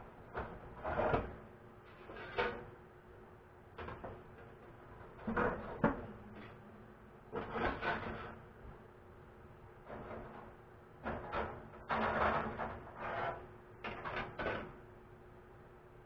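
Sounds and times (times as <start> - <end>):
wire racks scraping and rattling: 0.3 - 2.7, 7.3 - 8.5, 9.8 - 14.8.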